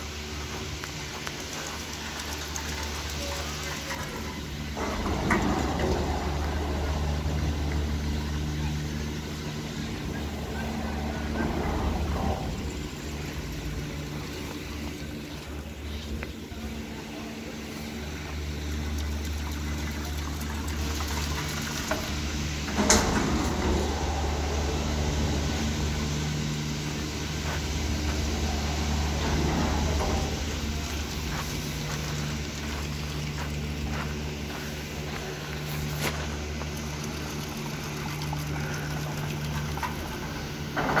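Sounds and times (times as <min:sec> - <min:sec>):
rushing water: 0:00.0 - 0:15.8, 0:18.0 - 0:26.3, 0:35.3 - 0:41.0
boat engine running: 0:00.0 - 0:41.0.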